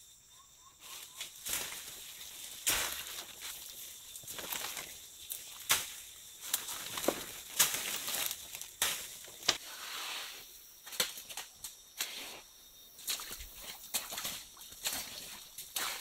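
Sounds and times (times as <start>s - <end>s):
footsteps through undergrowth: 0.8s - 9.6s, 13.0s - 16.0s
twigs cracking and snapping: 1.2s - 9.6s.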